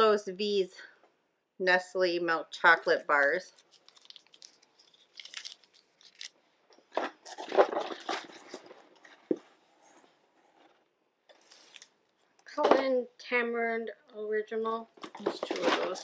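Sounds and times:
plastic wrappers crinkling: 2.8 - 9.5, 11.3 - 12.2, 15.0 - 16.0.

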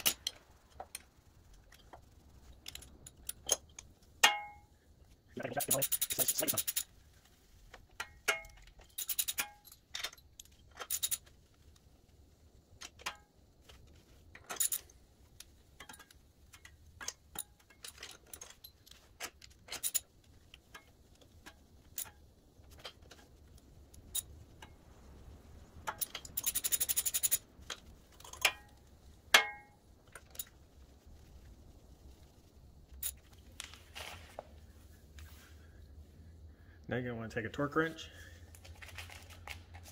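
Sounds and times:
metallic clinks: 5.4 - 6.9, 8.0 - 11.3, 25.8 - 27.5
socket ratchet clicking: 5.6 - 6.9, 8.8 - 10.1, 25.9 - 27.4.

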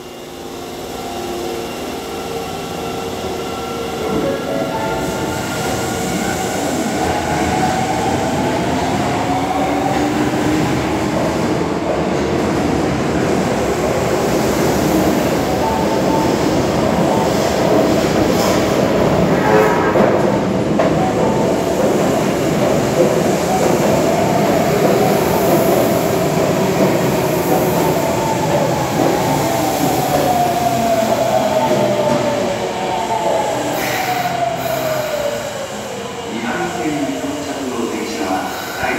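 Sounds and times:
short train horn: 19.2 - 20.6.

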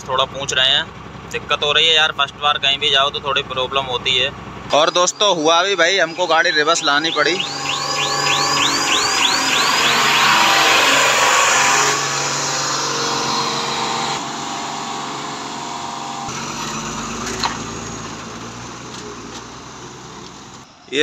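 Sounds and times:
heavy trucks driving past: 0.0 - 20.7
warbling reversing chime: 4.0 - 16.3.

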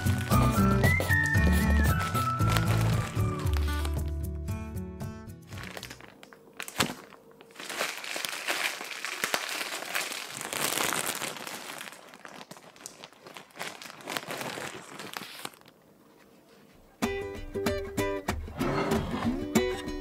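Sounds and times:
plastic bag crinkling: 0.0 - 4.3, 5.4 - 15.9.

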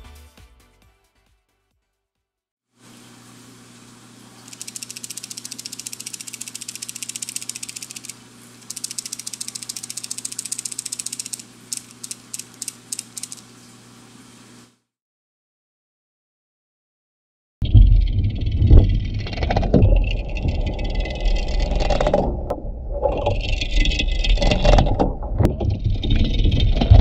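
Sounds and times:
fishing lure rattling: 4.5 - 13.4.

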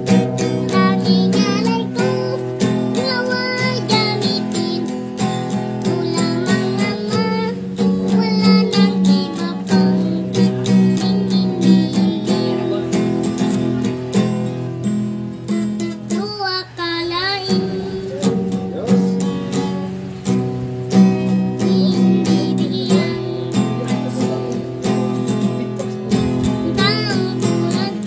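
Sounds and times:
child singing: 0.0 - 14.0, 15.8 - 18.5, 21.0 - 24.6, 26.1 - 28.0
acoustic guitar strumming: 0.0 - 28.0.

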